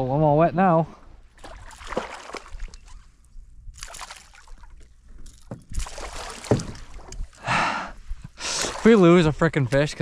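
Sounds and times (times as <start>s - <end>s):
fish thrashing and splashing: 1.4s - 3.0s, 3.8s - 7.2s
sharp knocks: 6.4s - 6.9s.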